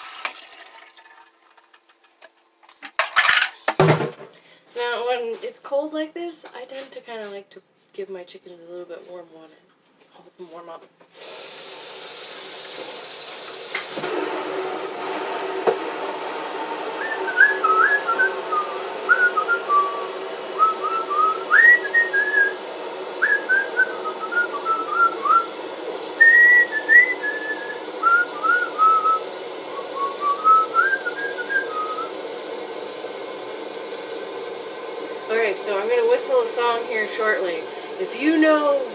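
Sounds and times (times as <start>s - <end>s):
running tap water: 0.0s - 2.0s, 11.2s - 38.9s
woman whistling a melody: 17.0s - 22.6s, 23.2s - 25.5s, 26.2s - 32.1s.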